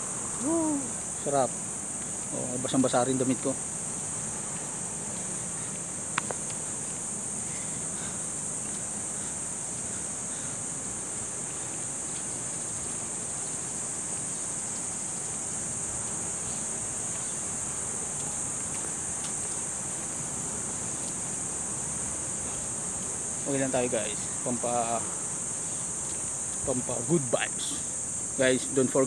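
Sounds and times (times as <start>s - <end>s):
faint background hiss: 0.0s - 29.0s
high-pitched insect drone: 0.0s - 29.0s.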